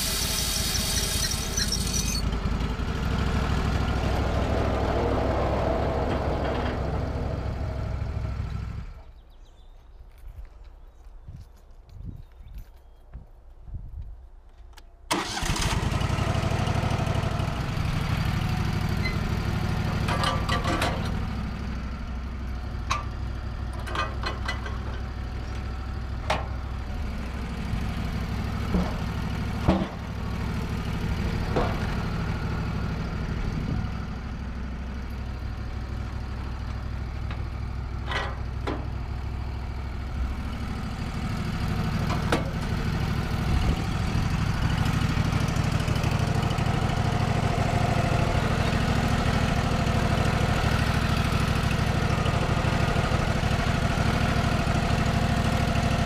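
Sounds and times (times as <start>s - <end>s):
engine starting and running: 0.0s - 9.2s, 15.1s - 56.0s.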